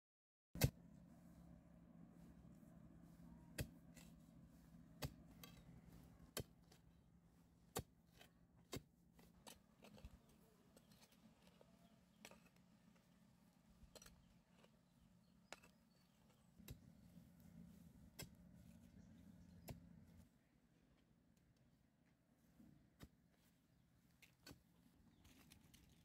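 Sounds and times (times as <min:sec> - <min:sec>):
iron bar striking stony soil: 0:00.6 - 0:00.8, 0:05.0 - 0:05.6, 0:06.3 - 0:06.8, 0:07.7 - 0:11.6, 0:12.2 - 0:12.6, 0:13.8 - 0:14.7, 0:15.4 - 0:16.8, 0:18.1 - 0:18.4
faint taps and scrapes: 0:07.7 - 0:13.2, 0:13.8 - 0:20.3.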